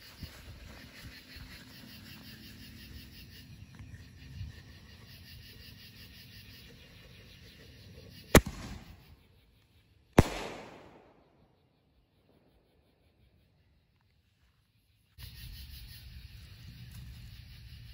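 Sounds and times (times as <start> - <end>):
firework launch bang: 8.4 - 9.0
firework shell burst: 8.4 - 9.0, 10.2 - 11.3.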